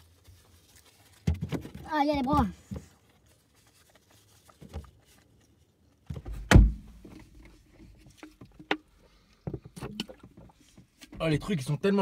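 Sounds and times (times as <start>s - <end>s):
faint clicks and rustles: 0.0s - 11.6s
dull thump in car: 6.1s - 7.3s.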